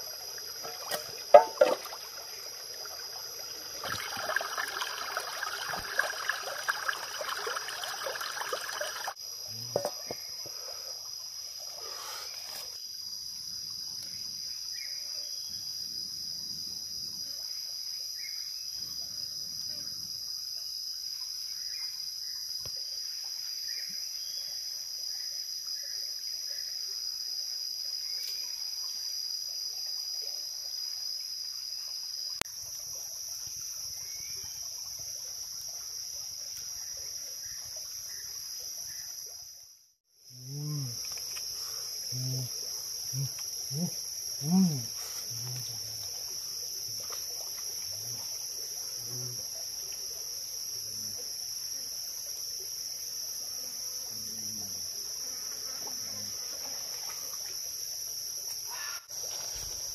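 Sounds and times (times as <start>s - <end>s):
stream rippling over rocks: 0.0s - 9.2s
chorus of insects: 0.0s - 59.9s.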